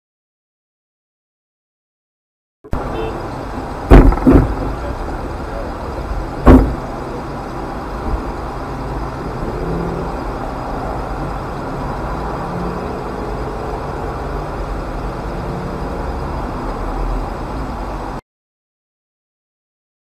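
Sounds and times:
distant traffic: 0:02.7 - 0:18.2
car driving slowly past: 0:02.8 - 0:18.2.

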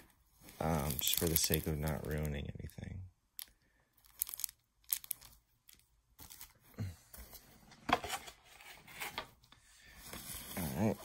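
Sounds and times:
plastic wrap rustling: 0:00.0 - 0:02.6.

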